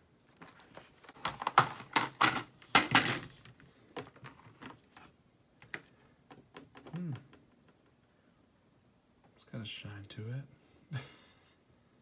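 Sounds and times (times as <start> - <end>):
plastic packaging crackling: 0.2 - 3.5.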